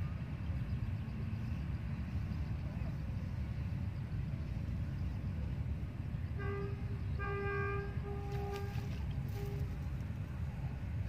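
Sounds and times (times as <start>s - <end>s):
vehicle horn: 6.4s - 9.8s.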